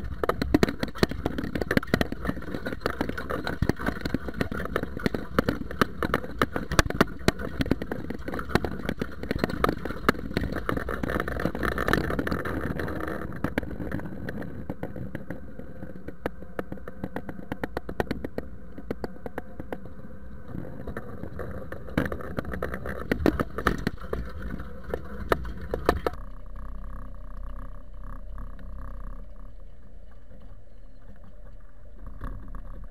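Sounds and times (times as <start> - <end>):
tractor engine running: 0.0 - 12.9, 22.0 - 32.9
cultivator rattling and clanking: 0.0 - 13.0, 21.9 - 26.2.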